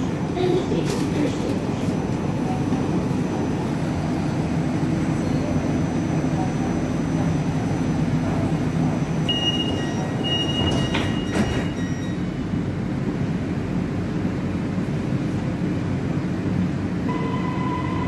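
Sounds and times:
low hum of stationary train: 0.0s - 18.0s
door-closing warning beeps: 9.3s - 12.2s.

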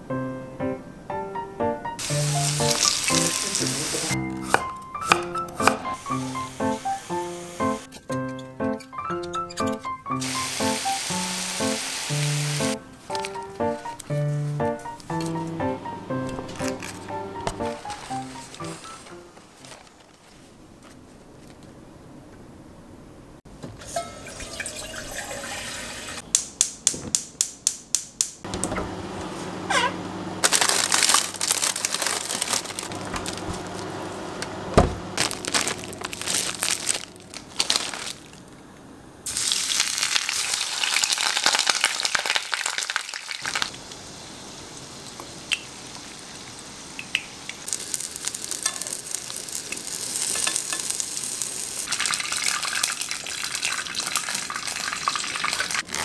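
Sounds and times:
cutlet sizzling in oil: 2.0s - 7.9s, 10.2s - 14.0s, 39.3s - 55.9s
tap running: 28.5s - 29.3s.

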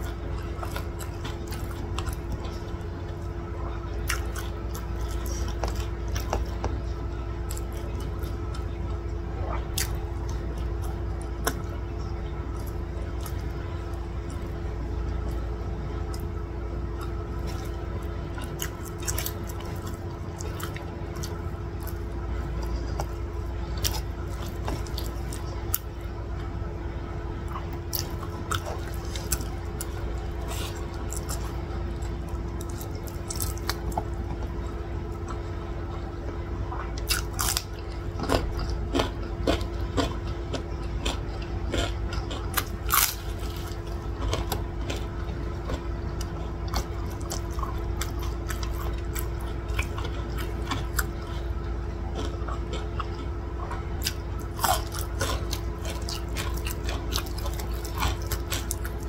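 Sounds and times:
steady background hum: 0.0s - 59.0s
wet mouth eating sounds: 3.9s - 6.8s, 9.4s - 11.8s, 36.7s - 59.0s.

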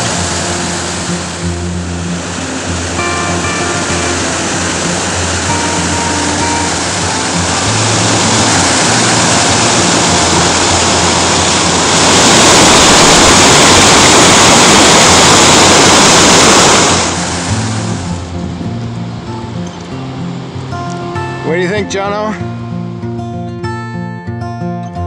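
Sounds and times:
faint music track: 0.0s - 12.0s, 17.2s - 25.0s
waterfall roaring: 0.0s - 22.1s.

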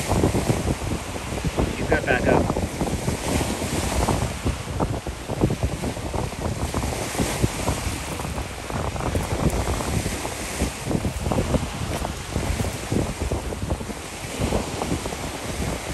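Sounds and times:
wind buffeting microphone: 0.0s - 15.9s
surf breaking on pebble beach: 5.4s - 15.7s.

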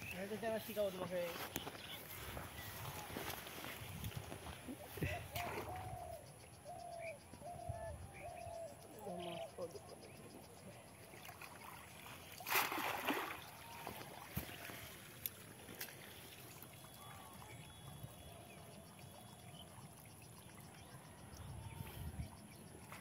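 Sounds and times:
faint water trickling: 7.7s - 23.0s
water splashing: 11.1s - 18.2s
small ticks: 15.2s - 16.9s.

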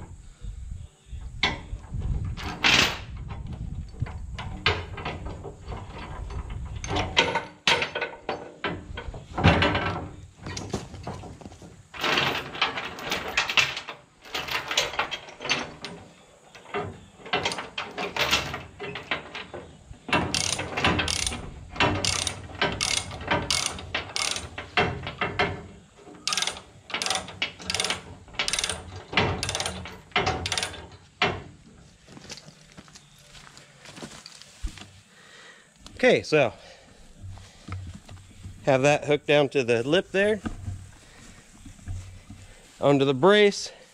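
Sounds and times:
ratchet binder pawl clicking: 20.2s - 24.8s, 26.2s - 30.8s.

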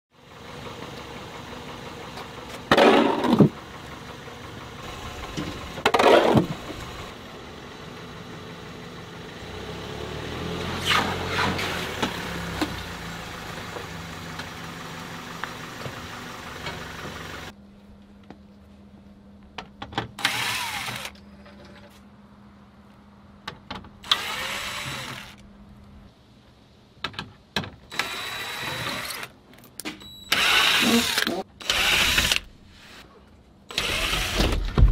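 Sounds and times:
van engine running: 0.2s - 17.6s
cordless driver whirring: 20.2s - 21.2s, 24.0s - 25.4s, 27.9s - 29.3s, 30.3s - 33.0s, 33.7s - 34.6s.

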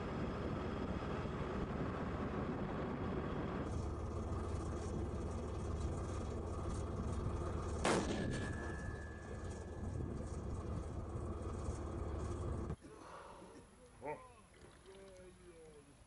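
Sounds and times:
tank engine rumbling: 0.0s - 15.2s
tank gun firing: 7.8s - 8.7s.

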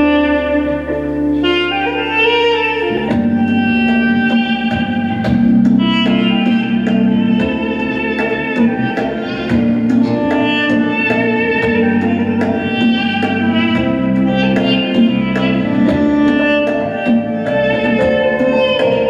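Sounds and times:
duduk melody: 0.0s - 19.0s
keyboard chords: 0.0s - 19.0s
congas in steady rhythm: 0.9s - 19.0s.

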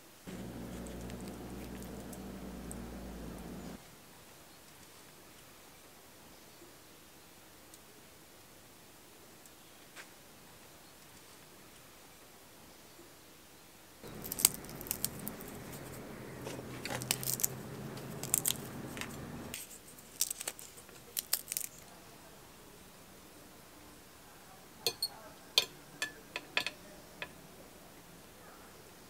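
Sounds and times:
low steady hum: 0.3s - 3.8s, 14.0s - 19.6s
fork clinking and scraping a plate: 24.9s - 26.7s.

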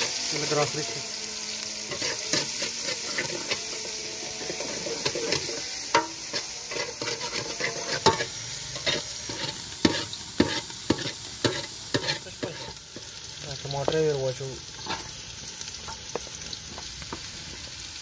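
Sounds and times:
onions sizzling in oil: 0.0s - 18.0s
metal ladle scraping pot: 1.9s - 12.8s.

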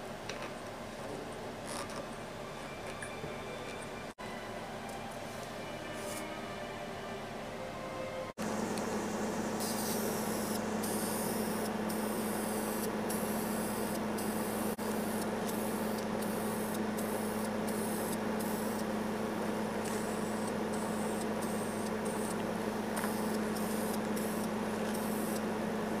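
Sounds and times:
steady low hum: 0.0s - 26.0s
spray paint can hissing: 9.6s - 18.9s, 19.8s - 22.4s, 23.0s - 25.5s.

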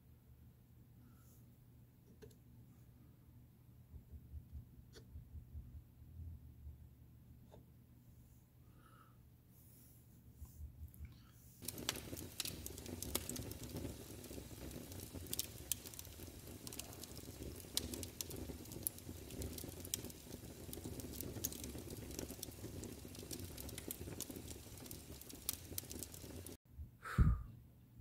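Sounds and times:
crackling and popping clicks: 11.6s - 26.6s
low rumbling noise: 26.8s - 27.5s.

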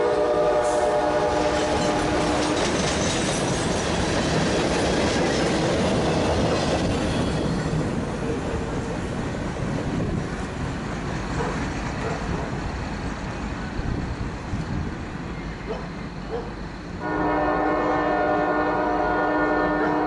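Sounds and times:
locomotive air horn chord: 0.0s - 2.6s, 17.0s - 20.0s
train rumbling: 0.0s - 20.0s.

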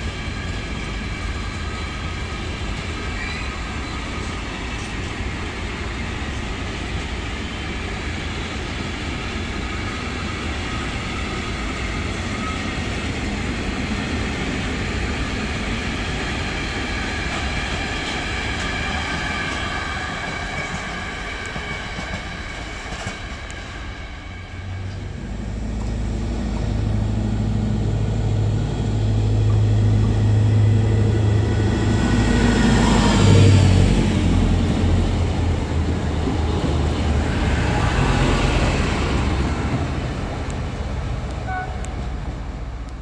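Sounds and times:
diesel train engines humming: 0.0s - 43.0s.

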